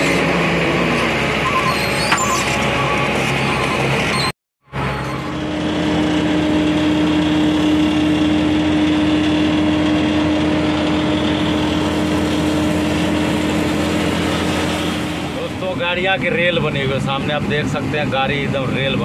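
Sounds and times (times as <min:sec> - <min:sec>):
diesel truck engine idling: 0:04.7 - 0:19.0.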